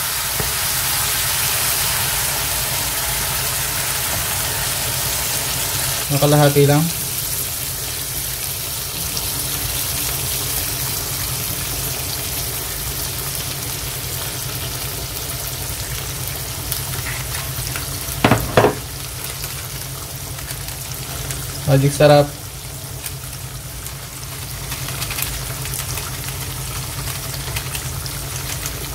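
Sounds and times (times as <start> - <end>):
fish sizzling in oil: 0.0 - 28.9
sharp knocks: 18.2 - 18.9.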